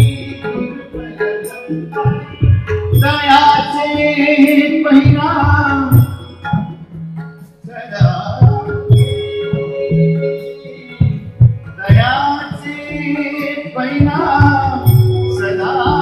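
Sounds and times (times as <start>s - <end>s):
harmonium: 0.0s - 16.0s
tabla strokes: 0.0s - 16.0s
person singing: 7.7s - 16.0s.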